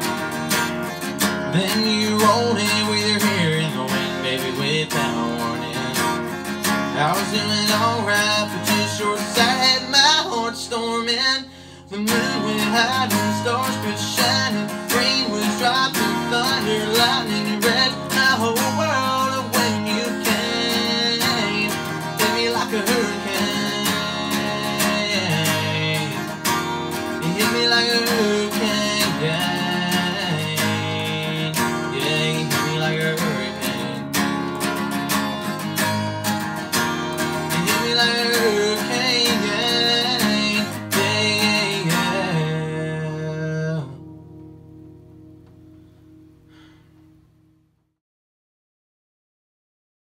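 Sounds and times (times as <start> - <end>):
man singing country song: 0.0 - 44.1
acoustic guitar strumming: 0.0 - 47.8.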